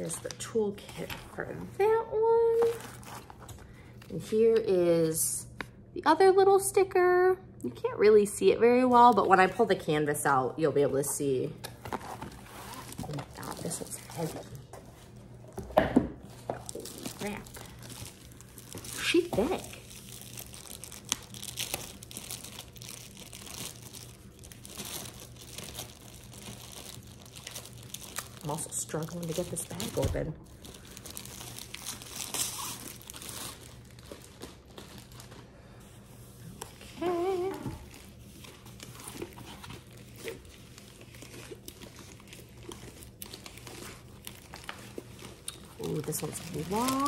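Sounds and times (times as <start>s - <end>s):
plastic packaging crinkling: 0.0s - 4.3s, 11.2s - 47.0s.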